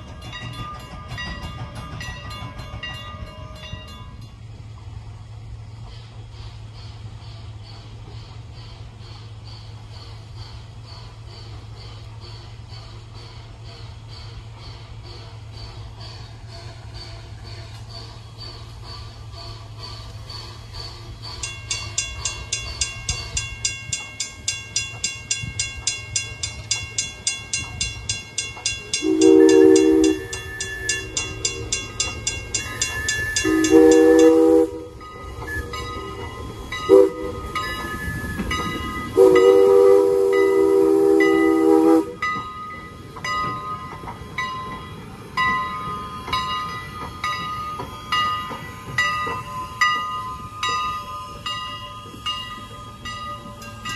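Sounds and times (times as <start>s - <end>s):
grade-crossing bell ringing: 0.0s - 4.6s, 7.4s - 53.9s
steam whistle: 29.0s - 31.2s, 33.0s - 36.2s, 36.8s - 42.2s.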